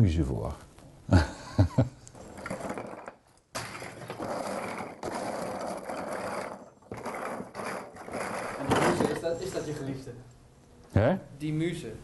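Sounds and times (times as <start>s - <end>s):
scraping and rattling at workbench: 2.2s - 10.0s.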